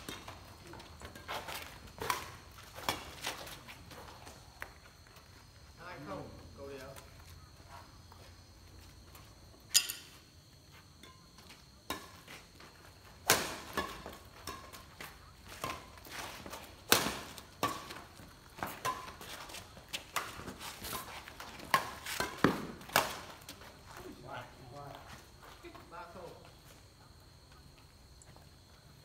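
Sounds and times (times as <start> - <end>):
rackets hitting shuttlecock: 13.2 - 19.2, 20.0 - 23.4
footsteps on court: 13.8 - 28.6.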